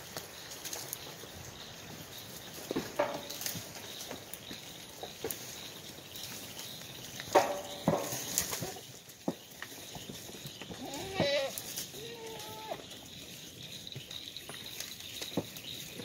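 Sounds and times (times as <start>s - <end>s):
leaves rustling and twigs clicking: 0.0s - 16.0s
goat bleating: 10.8s - 12.8s.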